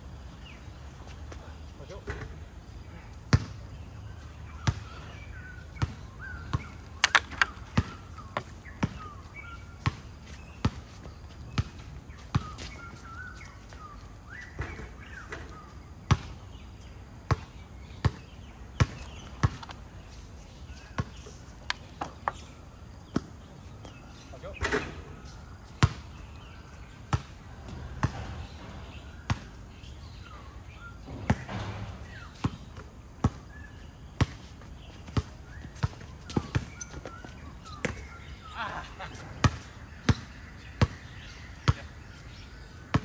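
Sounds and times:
basketballs bouncing on a court: 3.3s - 3.8s, 4.6s - 6.8s, 7.7s - 9.2s, 9.8s - 11.0s, 11.6s - 12.7s, 16.1s - 16.4s, 17.2s - 19.6s, 21.0s - 21.2s, 25.7s - 26.2s, 27.1s - 29.7s, 31.0s - 33.5s, 34.2s - 42.0s, 42.7s - 43.0s
distant calls: 35.0s - 43.0s
shoe squeaks: 35.3s - 39.8s.

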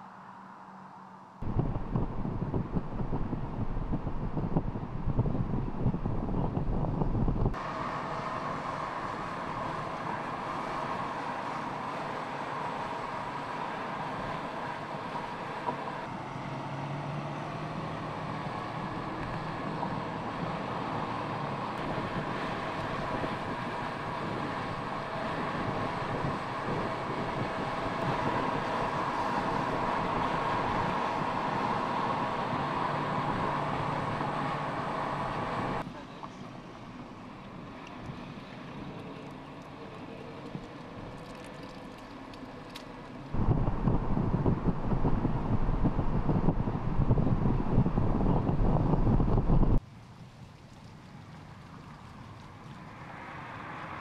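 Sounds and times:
engine and tyre drone: 0.0s - 49.8s, 52.1s - 54.0s
low wind rumble: 0.0s - 54.0s
wind noise: 1.4s - 7.6s, 17.1s - 35.8s, 43.3s - 49.8s.

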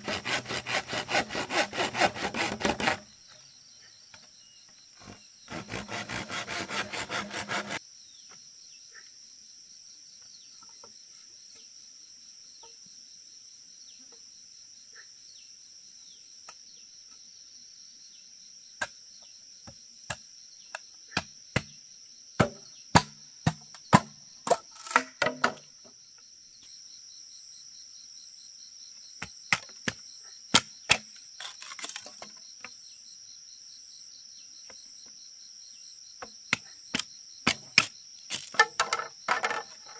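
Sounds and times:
machete chopping bamboo: 0.0s - 3.1s, 19.6s - 21.8s, 22.4s - 25.6s, 29.2s - 32.4s, 36.2s - 39.6s
machete scraping bamboo: 0.0s - 3.2s, 5.0s - 7.8s, 23.9s - 25.7s, 29.5s - 32.4s, 36.5s - 39.9s
insects droning: 0.0s - 39.9s.

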